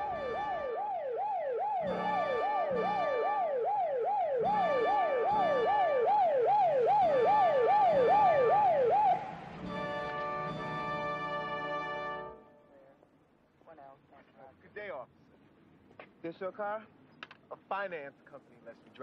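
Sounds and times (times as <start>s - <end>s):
police siren wailing: 0.0s - 12.4s.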